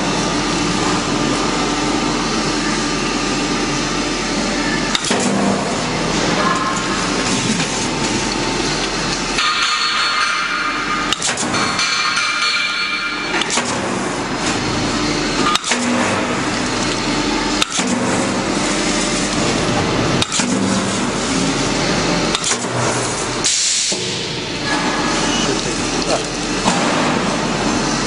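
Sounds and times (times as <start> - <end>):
welding machine hiss and hum: 0.0 - 28.0
sharp machine click: 22.3 - 22.7.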